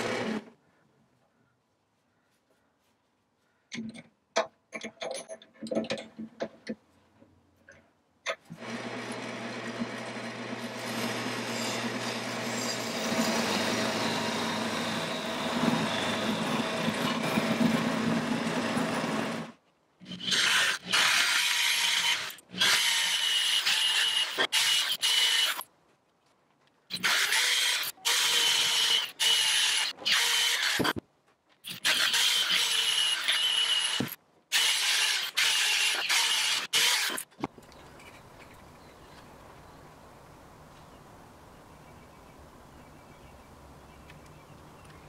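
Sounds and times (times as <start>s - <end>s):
chisel cutting spinning wood: 8.6s - 19.5s
wood lathe humming: 8.6s - 19.5s.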